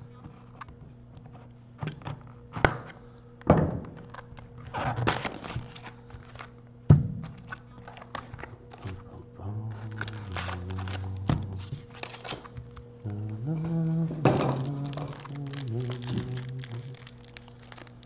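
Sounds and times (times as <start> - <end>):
scissors cutting plastic wrap: 4.0 - 6.5, 9.6 - 18.0
plastic wrap rustling: 4.0 - 6.6, 7.4 - 18.0.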